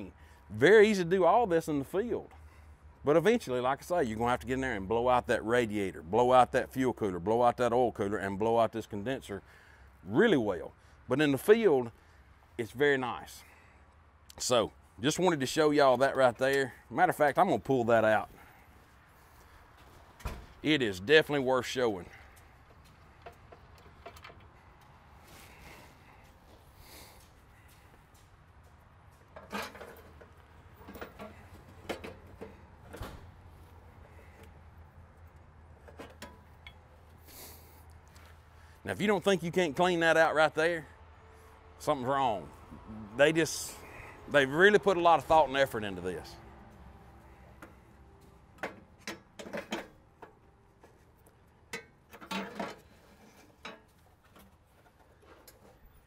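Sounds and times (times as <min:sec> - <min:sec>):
metal cooler core clattering: 0:29.3 - 0:33.2, 0:35.8 - 0:36.9, 0:48.5 - 0:56.0.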